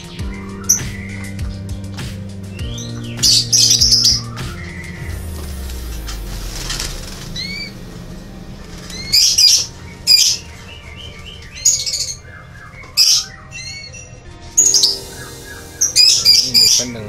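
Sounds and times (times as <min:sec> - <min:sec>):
canaries chirping: 0:00.0 - 0:17.0
canaries squawking: 0:00.0 - 0:17.0
birds flapping in cage: 0:05.2 - 0:07.8, 0:08.6 - 0:13.3.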